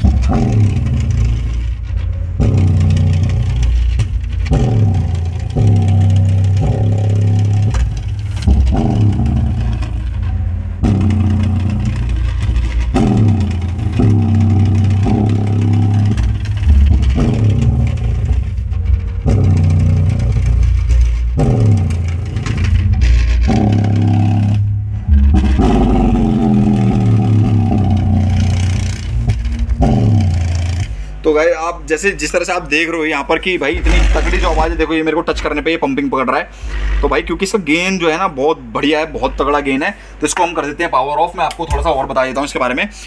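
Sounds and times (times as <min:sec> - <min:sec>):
subwoofer playing deep bass: 0:00.0 - 0:31.3, 0:33.4 - 0:36.0.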